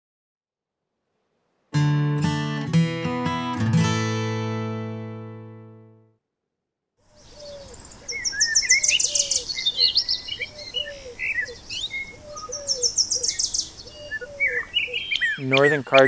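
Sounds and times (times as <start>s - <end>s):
songbirds singing: 7.0s - 16.0s
high rapid bird trill: 7.1s - 16.0s.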